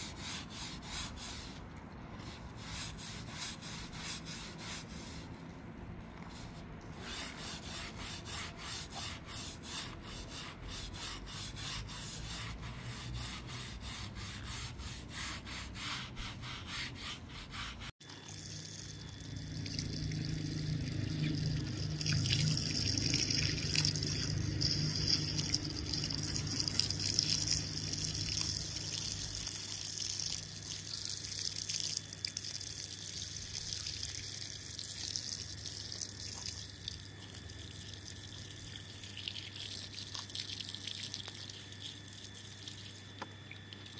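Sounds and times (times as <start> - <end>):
brush scrubbing wet carpet: 6.4 - 17.9, 20.9 - 29.4.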